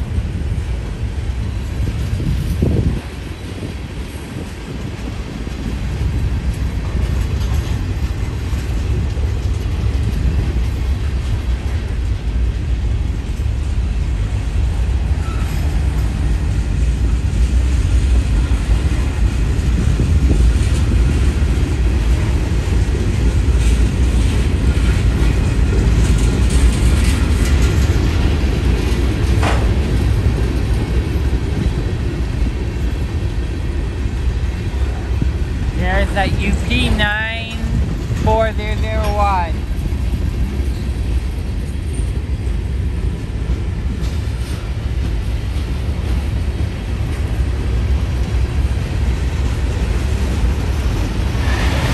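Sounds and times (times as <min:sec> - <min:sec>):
train cars clanking: 0:00.0 - 0:51.9
train wheels rumbling on rails: 0:00.0 - 0:51.9
brief squeak: 0:15.2 - 0:15.6.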